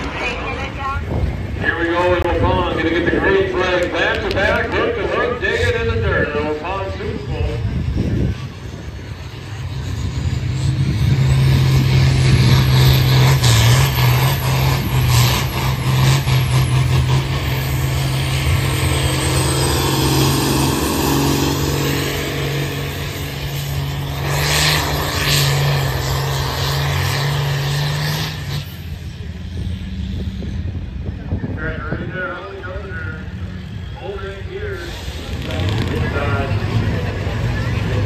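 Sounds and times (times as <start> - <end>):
tractor diesel engine under load: 0.0 - 38.0.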